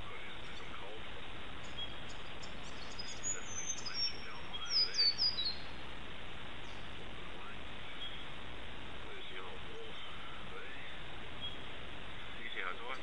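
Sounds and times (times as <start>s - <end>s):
steady hiss: 0.0s - 13.0s
high whistled bird calls: 1.6s - 5.8s, 7.8s - 8.3s, 9.9s - 11.7s.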